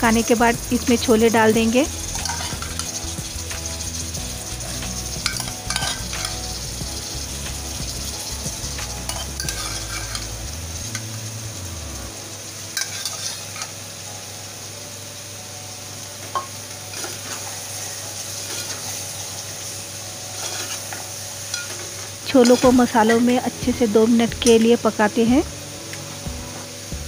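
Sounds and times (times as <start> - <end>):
spices sizzling in oil: 0.0 - 27.0
spatula clinking against pot: 2.2 - 3.0, 5.2 - 6.5, 9.1 - 10.3, 12.8 - 13.7.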